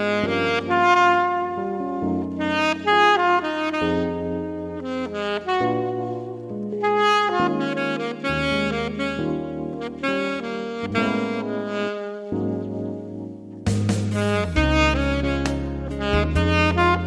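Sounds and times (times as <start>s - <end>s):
alto saxophone melody: 0.0s - 17.0s.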